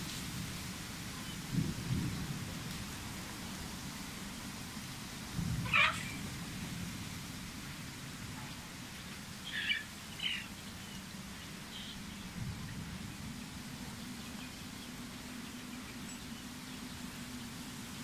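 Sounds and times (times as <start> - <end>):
wind through palm fronds: 0.0 - 18.0
bird chirp: 9.0 - 18.0.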